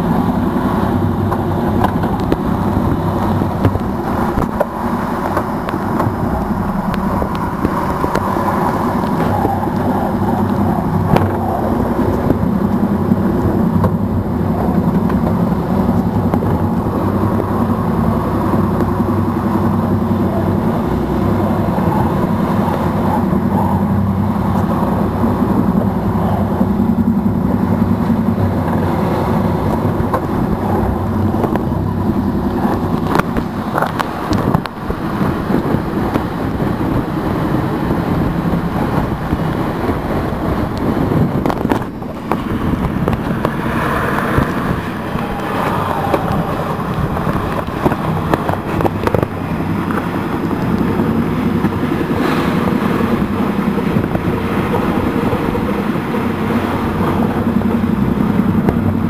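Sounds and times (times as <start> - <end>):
water rushing past hulls: 0.0 - 59.0
wind buffeting microphone: 0.0 - 59.0.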